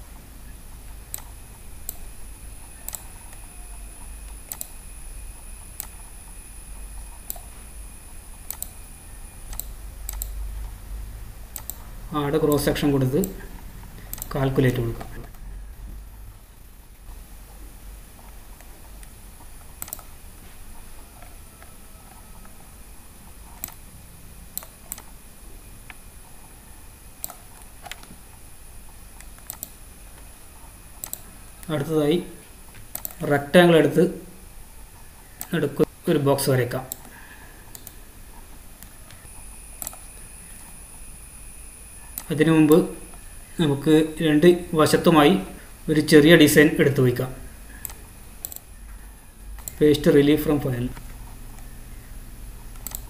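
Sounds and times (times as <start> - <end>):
thin high whine: 0.0 - 32.5, 33.2 - 53.0
background hiss: 0.0 - 53.0
faint electrical hum: 0.0 - 53.0
computer mouse clicking: 0.8 - 3.5, 4.2 - 4.8, 5.6 - 6.1, 6.8 - 7.5, 8.4 - 8.8, 9.4 - 10.8, 11.5 - 15.4, 18.2 - 22.6, 23.4 - 23.8, 24.5 - 25.2, 27.2 - 28.3, 29.1 - 30.3, 31.0 - 31.8, 32.7 - 33.3, 36.9 - 40.8, 42.0 - 43.2, 47.8 - 49.8, 52.6 - 53.0.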